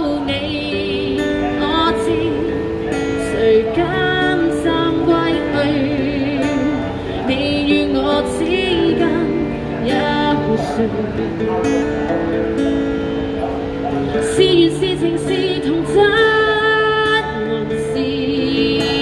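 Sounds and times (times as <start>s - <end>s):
woman singing: 0.0s - 11.4s, 14.1s - 19.0s
acoustic guitar: 0.0s - 19.0s.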